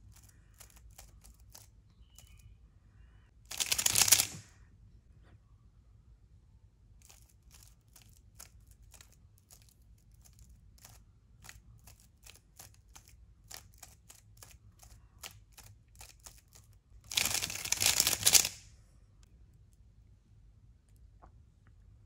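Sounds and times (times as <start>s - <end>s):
speed cube clicking: 0.0s - 2.4s, 3.5s - 4.4s, 7.0s - 18.6s
dense burst of cube clacking: 3.5s - 4.4s, 7.0s - 18.6s.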